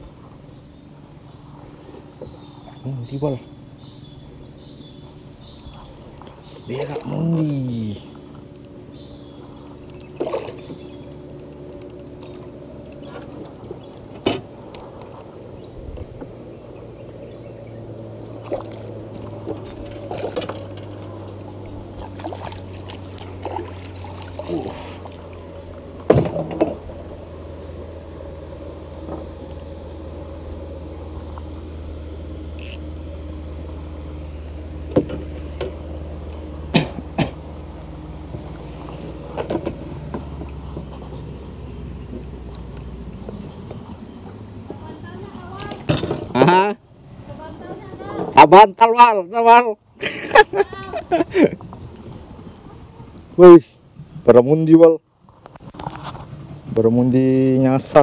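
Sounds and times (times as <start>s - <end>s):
insects droning: 0.0s - 58.0s.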